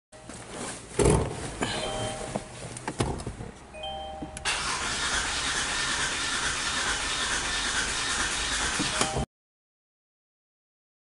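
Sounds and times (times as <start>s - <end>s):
short beep: 1.8s - 2.3s
car engine cranking: 4.4s - 9.1s.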